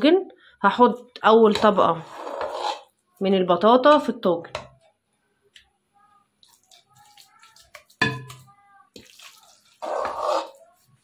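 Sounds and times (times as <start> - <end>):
spoon scraping metal pot: 1.5 - 3.0, 6.6 - 11.0
wet squelches of mash: 6.4 - 11.0.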